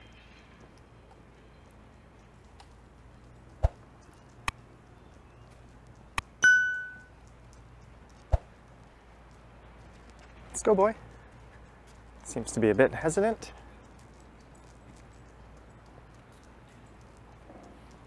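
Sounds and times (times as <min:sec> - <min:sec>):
clear metallic ding: 0:06.4 - 0:07.1.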